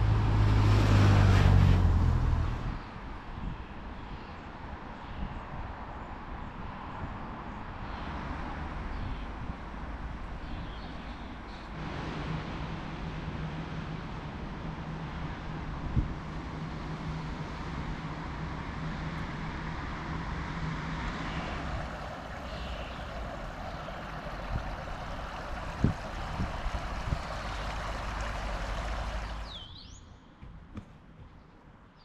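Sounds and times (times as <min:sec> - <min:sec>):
faint hum: 0:21.0 - 0:29.5
low rumble: 0:21.1 - 0:29.6
bird chirping: 0:21.2 - 0:30.4.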